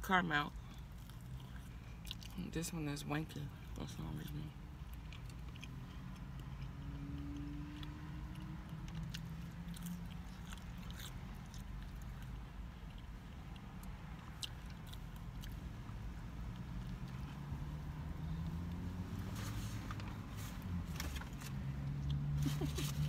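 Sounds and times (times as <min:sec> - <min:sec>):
close-up chewing: 0:00.7 - 0:02.5, 0:04.8 - 0:15.7
biting into sandwich: 0:04.9 - 0:13.0.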